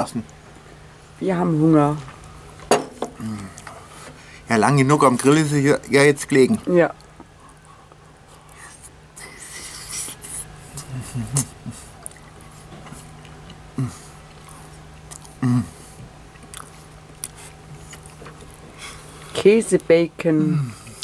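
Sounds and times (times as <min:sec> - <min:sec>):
man chewing: 0:03.1 - 0:04.1, 0:07.0 - 0:19.4
man humming: 0:03.2 - 0:03.7, 0:09.2 - 0:12.1, 0:13.7 - 0:14.2, 0:15.3 - 0:16.0.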